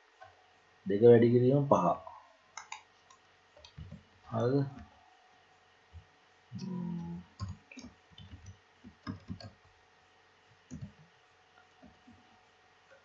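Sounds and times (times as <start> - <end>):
low hum: 5.9 - 8.4
keyboard key clicks: 7.4 - 9.6.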